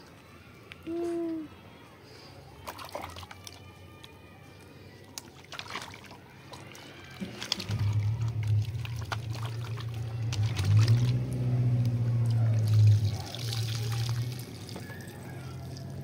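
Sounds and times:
water splashing in a metal pot: 2.6 - 3.7, 5.1 - 16.0
low hum: 7.4 - 14.4.

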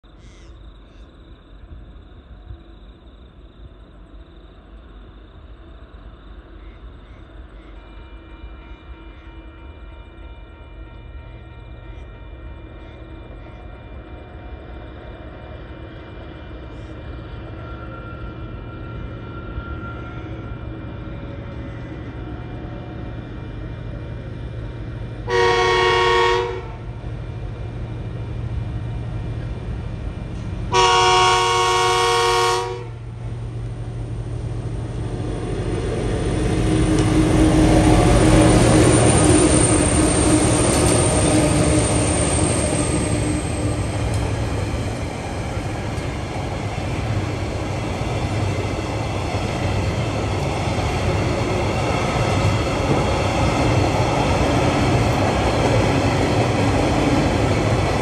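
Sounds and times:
train horn blasts: 7.7 - 13.6, 25.2 - 27.0, 30.7 - 33.2
locomotive engines passing: 11.0 - 58.0.

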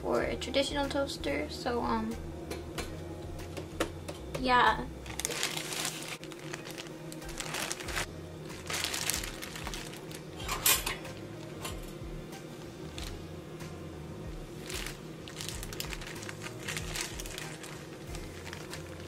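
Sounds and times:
faint background music: 0.0 - 19.0
toaster rattles and clicks: 10.4 - 12.0.

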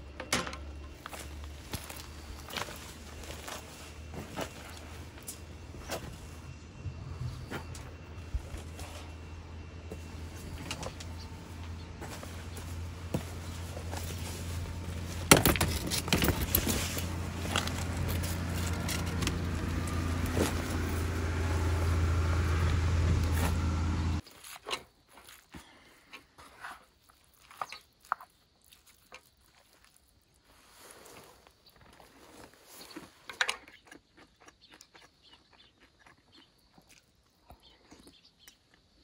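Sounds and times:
low mechanical hum: 0.0 - 24.3.

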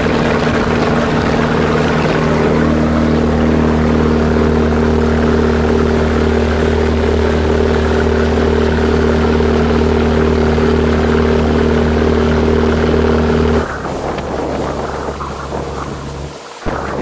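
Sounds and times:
boat engine running: 0.0 - 17.0
water rushing: 0.0 - 17.0
wind buffeting microphone: 0.0 - 17.0.

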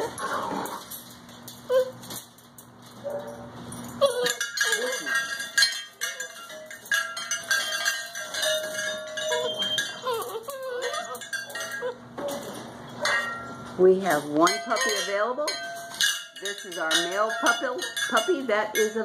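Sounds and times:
puppies whining: 0.0 - 2.2, 3.1 - 13.7.

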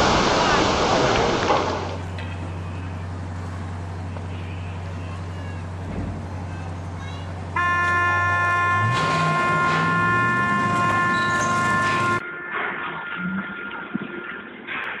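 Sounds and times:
deep ship's horn: 7.6 - 12.7
higher-pitched horn: 7.6 - 13.4.

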